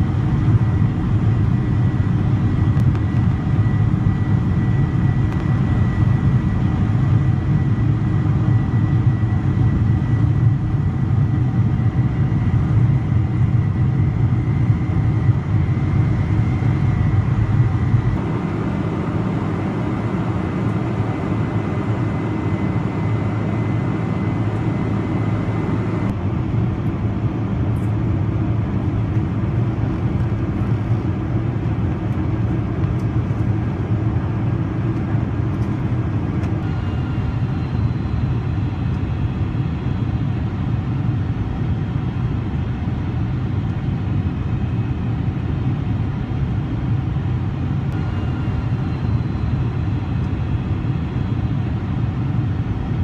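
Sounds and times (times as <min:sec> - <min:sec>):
jet engine cabin noise: 0:00.0 - 0:53.0
thin high whine: 0:36.6 - 0:38.9, 0:47.9 - 0:50.7.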